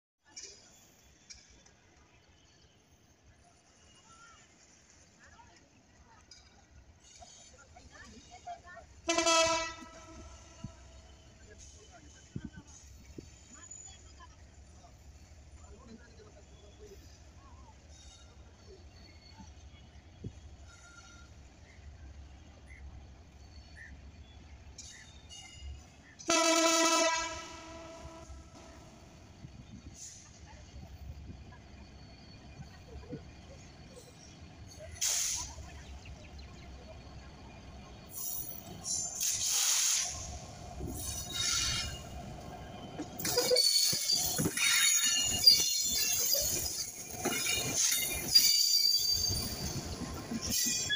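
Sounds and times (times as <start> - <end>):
train rumbling: 0.4 - 50.9
locomotive horn blast: 9.0 - 11.0, 26.2 - 28.9
wheels clanking over rail joints: 22.2 - 50.9.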